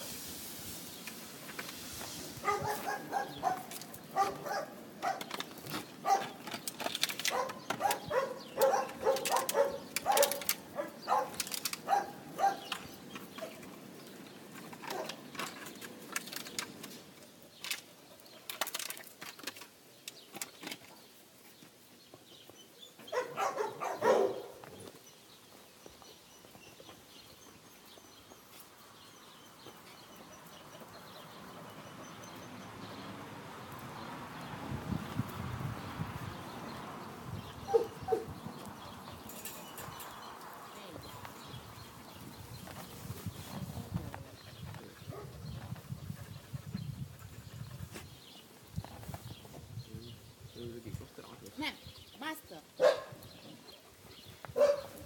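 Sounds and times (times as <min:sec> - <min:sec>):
dogs barking: 0:02.4 - 0:05.4, 0:06.0 - 0:06.5, 0:07.2 - 0:13.6, 0:23.0 - 0:24.6, 0:37.6 - 0:38.4, 0:45.0 - 0:45.4, 0:52.8 - 0:53.2, 0:54.5 - 0:55.0.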